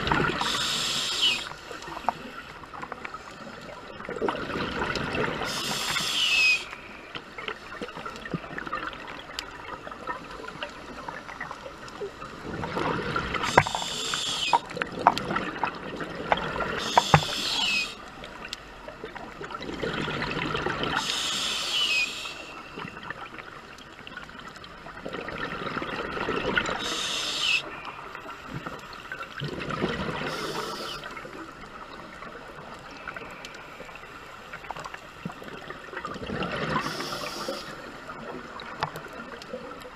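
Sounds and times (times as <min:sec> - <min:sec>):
diver breathing through regulator: 0:00.3 - 0:01.7, 0:05.5 - 0:06.7, 0:13.4 - 0:14.7, 0:16.8 - 0:18.0, 0:21.0 - 0:22.6, 0:26.8 - 0:27.7, 0:36.8 - 0:37.8.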